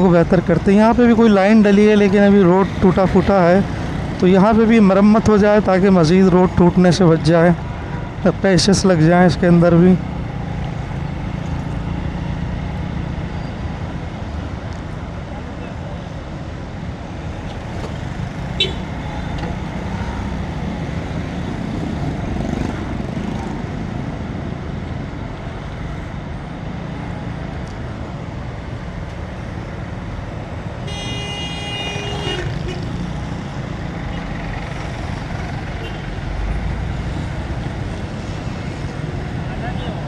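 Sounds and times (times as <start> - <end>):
motorcycle engine and road rumble: 0.0 - 40.0
vehicle horn: 18.6 - 18.9, 30.8 - 32.9.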